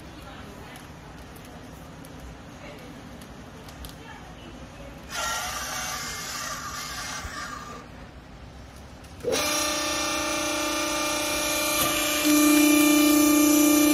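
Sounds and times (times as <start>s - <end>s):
hydraulic pump motor whine and hum: 9.2s - 13.9s.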